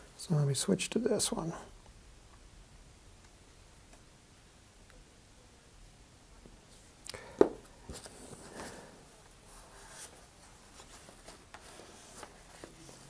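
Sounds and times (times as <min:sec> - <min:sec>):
paper towel rustling: 0:07.8 - 0:13.0.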